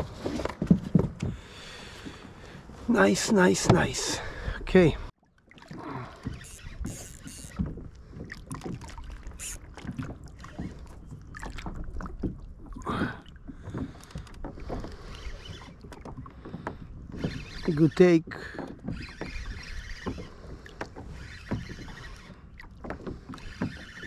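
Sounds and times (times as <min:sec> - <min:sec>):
water lapping against kayak hull: 0:00.0 - 0:24.0
fishing rod and reel knocks: 0:06.2 - 0:07.8.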